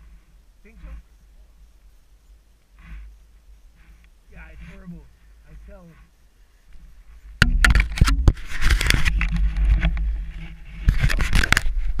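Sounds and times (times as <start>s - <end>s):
sharp knocks and handling noise: 7.4s - 11.8s.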